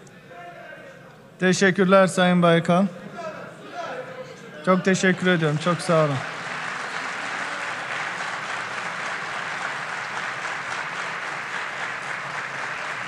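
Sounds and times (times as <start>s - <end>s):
people applauding: 5.0s - 13.0s.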